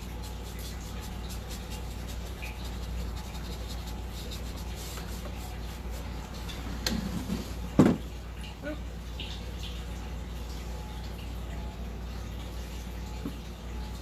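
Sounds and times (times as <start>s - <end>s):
brush scratching on wood: 0.0s - 6.2s.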